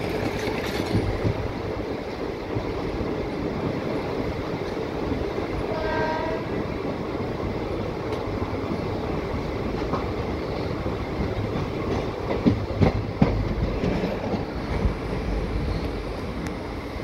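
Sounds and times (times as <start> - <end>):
train wheels rumbling: 0.0 - 17.0
train horn: 5.7 - 6.7.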